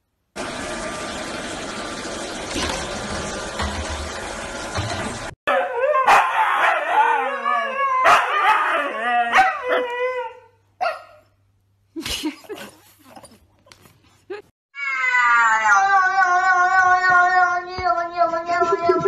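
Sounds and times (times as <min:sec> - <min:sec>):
husky howling: 0:05.5 - 0:10.5.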